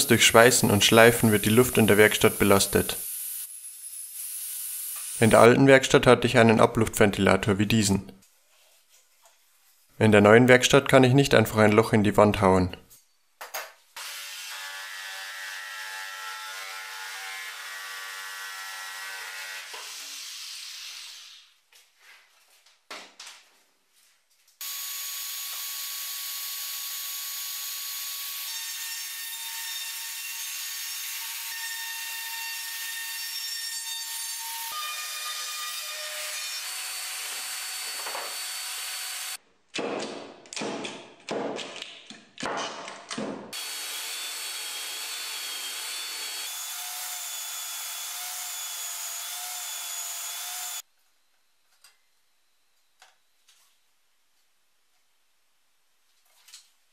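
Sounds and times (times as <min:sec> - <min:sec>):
router cutting plywood: 0:24.6 - 0:29.8, 0:35.3 - 0:39.4, 0:43.6 - 0:50.8.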